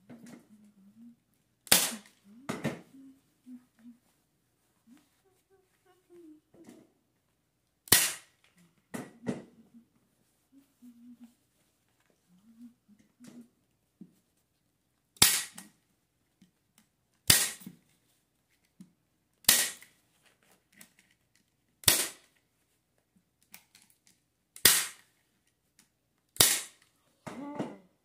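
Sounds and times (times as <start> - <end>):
staple gun firing: 26.4 - 26.8.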